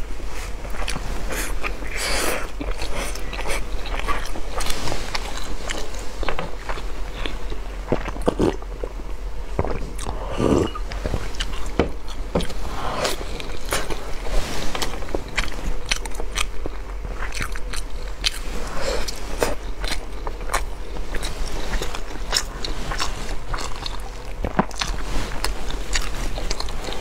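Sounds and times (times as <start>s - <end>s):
person chewing sticky food: 0.5s - 9.0s, 9.6s - 27.0s.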